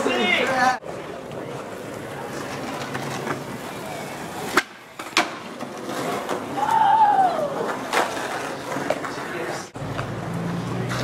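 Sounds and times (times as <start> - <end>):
skateboard wheels rolling on asphalt: 0.0 - 11.0
skateboard landing clack: 4.4 - 6.5
skateboard pop: 4.4 - 6.8.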